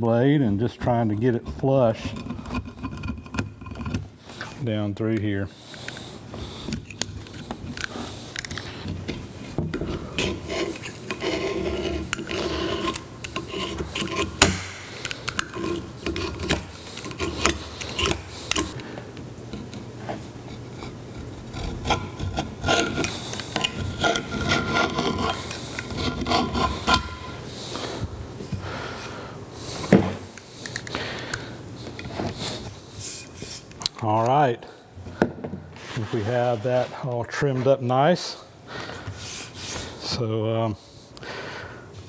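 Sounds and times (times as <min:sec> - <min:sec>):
razor blade scraping plastic strip: 0:10.2 - 0:18.8.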